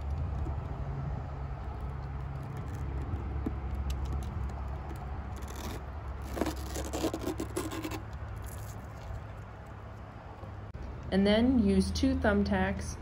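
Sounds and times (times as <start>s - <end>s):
steady low rumble: 0.0s - 13.0s
hands scraping tree bark: 2.2s - 9.3s.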